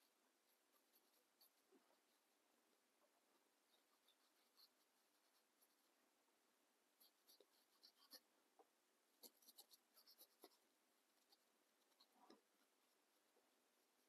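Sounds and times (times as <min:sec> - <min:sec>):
paintbrush scrubbing: 0:00.0 - 0:02.4, 0:03.3 - 0:06.0, 0:07.0 - 0:08.3, 0:09.2 - 0:14.0.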